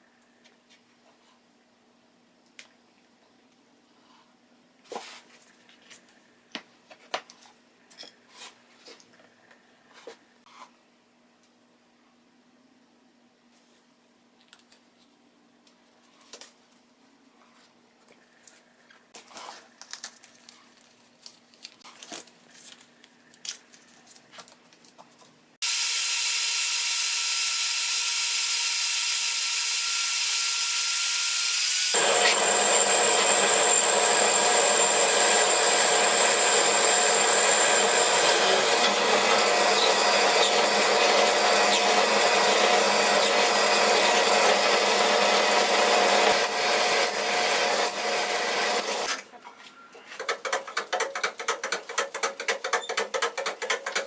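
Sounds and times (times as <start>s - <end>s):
drill press whining: 25.7s - 49.1s
taps and scrapes of hand work: 50.0s - 54.0s.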